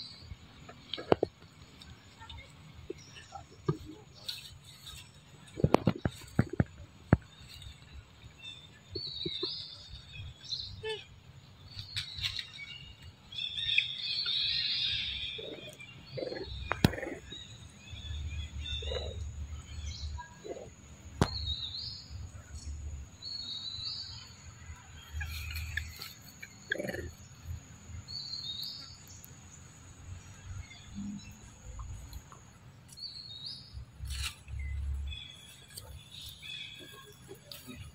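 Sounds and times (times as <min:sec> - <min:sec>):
birds chirping: 0:00.0 - 0:37.9.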